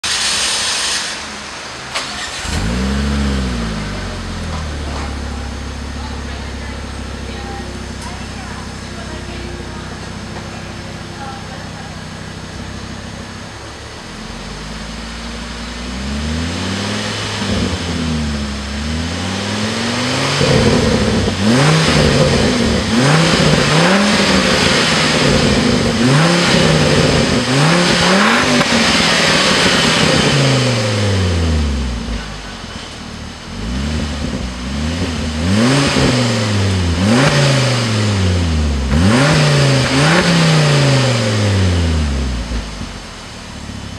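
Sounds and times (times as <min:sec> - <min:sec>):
car engine revving at standstill: 0:00.0 - 0:43.9.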